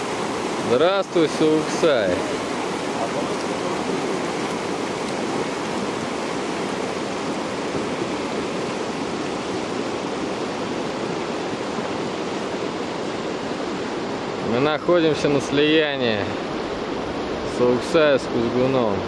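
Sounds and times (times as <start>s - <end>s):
fast mountain river rushing: 0.0s - 19.0s.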